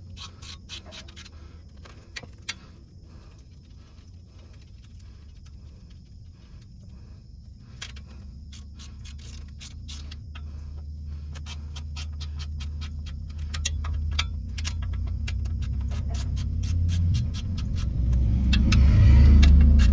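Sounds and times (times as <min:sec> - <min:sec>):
ratchet wrench clicking: 0:00.0 - 0:01.4, 0:07.8 - 0:10.5, 0:11.3 - 0:19.9
low rumble: 0:01.3 - 0:19.9.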